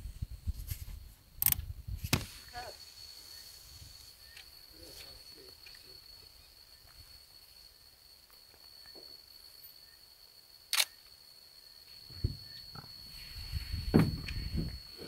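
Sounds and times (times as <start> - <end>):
camera shutter click: 10.7 - 11.0.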